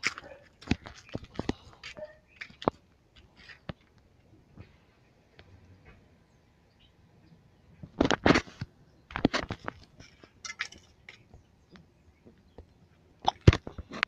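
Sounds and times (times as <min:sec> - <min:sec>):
footsteps on gravel: 0:00.0 - 0:03.9.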